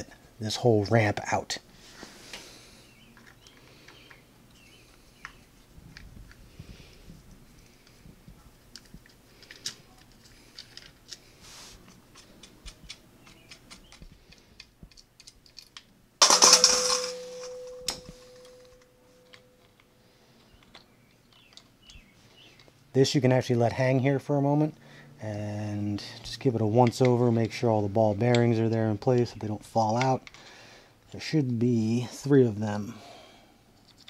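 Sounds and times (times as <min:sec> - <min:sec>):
loud metallic clatter: 0:16.2 - 0:18.8
ringing metallic tone: 0:16.2 - 0:19.6.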